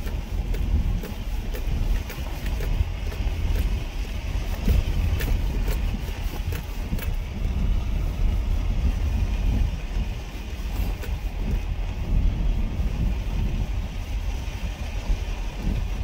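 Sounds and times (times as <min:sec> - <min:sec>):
road and wind noise rumble: 0:00.0 - 0:16.0.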